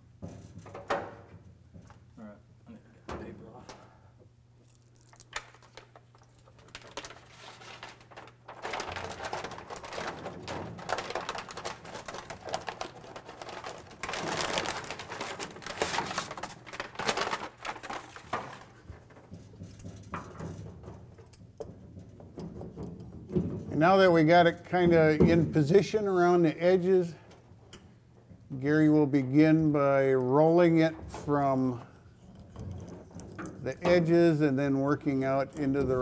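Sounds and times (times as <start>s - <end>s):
rubber mat rustling and crinkling: 4.6s - 21.3s.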